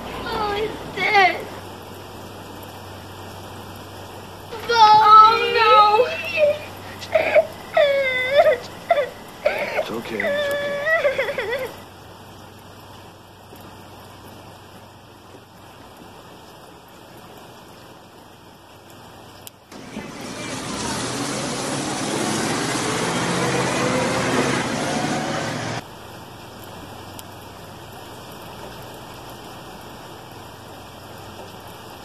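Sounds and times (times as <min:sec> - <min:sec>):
large vehicle rushing past: 0:19.7 - 0:25.8.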